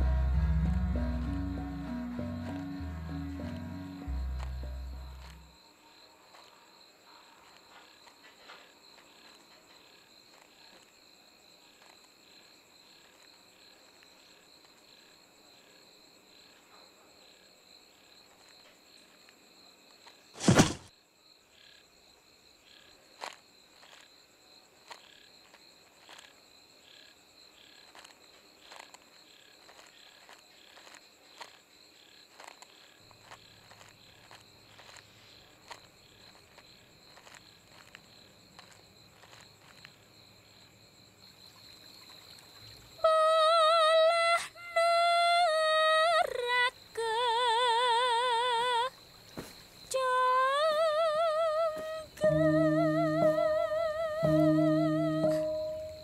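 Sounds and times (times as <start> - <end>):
low hum: 0.0 - 5.5
crickets chirping: 0.0 - 56.0.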